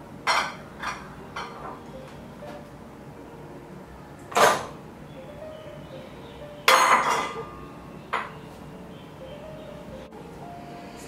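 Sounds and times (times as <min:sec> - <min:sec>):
kitchen bowls clinking: 0:00.3 - 0:01.9, 0:04.3 - 0:04.8, 0:06.7 - 0:07.5.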